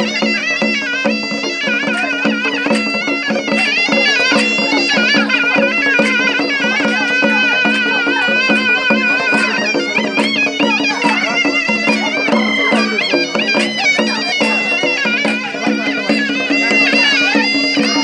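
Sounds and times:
drums beating: 0.0 - 18.0
reedy wind instrument melody: 0.0 - 18.0.

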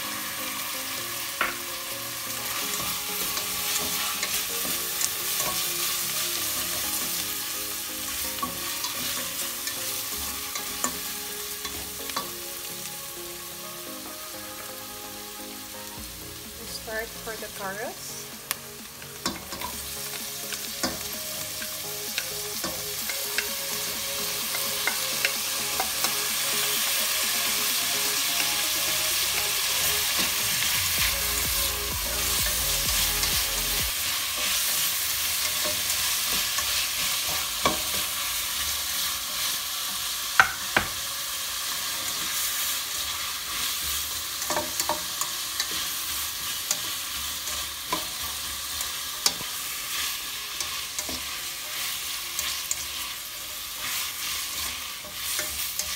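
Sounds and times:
vegetables sizzling in oil: 0.0 - 55.9
spatula knocking against pan: 40.4 - 40.9.

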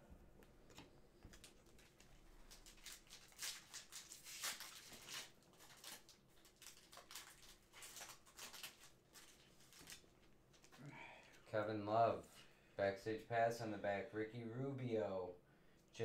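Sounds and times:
card pack crinkling and rustling: 0.7 - 10.8.

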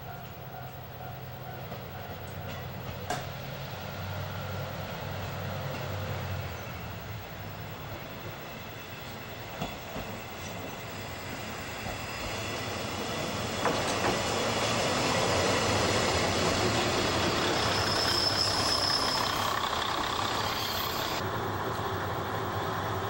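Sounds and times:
diesel railcar engine humming: 0.0 - 23.0
high wheel squeal: 13.6 - 21.2.

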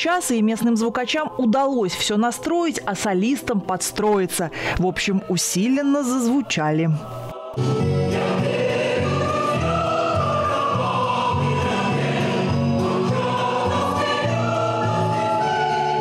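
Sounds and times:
amplified choir singing chords: 6.9 - 16.0.

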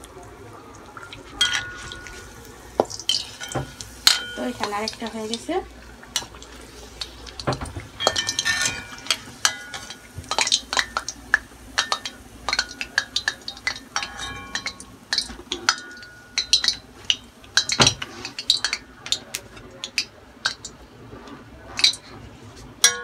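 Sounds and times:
metal spoon clinking on pan: 1.4 - 2.3, 3.1 - 5.2, 8.0 - 11.2, 11.8 - 20.7, 22.8 - 23.0.

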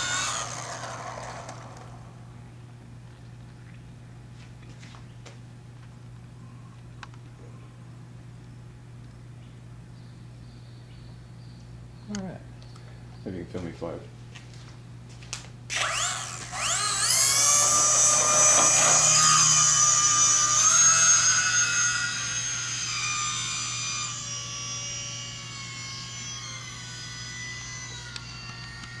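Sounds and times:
model plane motor whine: 0.0 - 2.3, 15.7 - 29.0.

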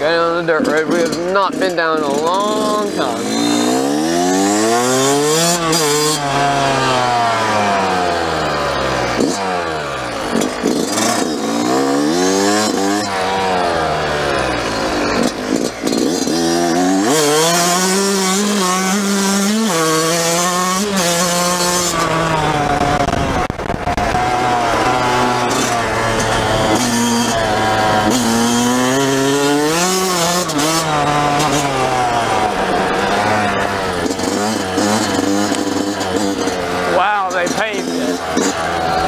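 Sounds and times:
dirt bike engine accelerating: 0.0 - 39.0.

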